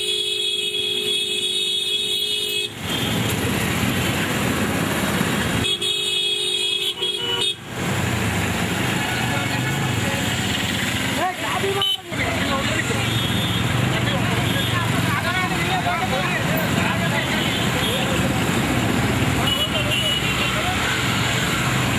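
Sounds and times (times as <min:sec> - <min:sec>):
vehicle horn blasts: 0:00.0 - 0:03.2, 0:05.6 - 0:07.6
truck engines and road noise: 0:00.0 - 0:21.9.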